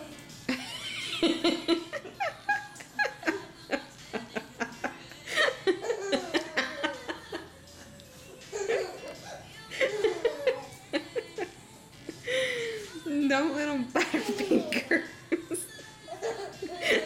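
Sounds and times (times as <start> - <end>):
baby giggling: 5.8 - 7.2, 8.4 - 11.5, 16.0 - 17.0.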